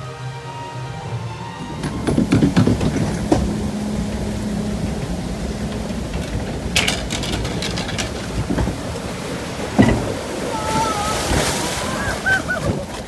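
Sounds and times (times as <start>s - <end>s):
rushing water and moving boat: 0.0s - 13.0s
knocks: 1.6s - 9.0s, 9.7s - 10.2s
short clatter: 1.6s - 9.0s.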